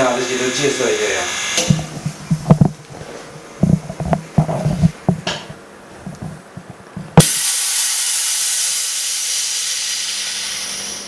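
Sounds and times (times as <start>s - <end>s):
loud steady air hiss: 0.0s - 2.3s, 7.2s - 11.0s.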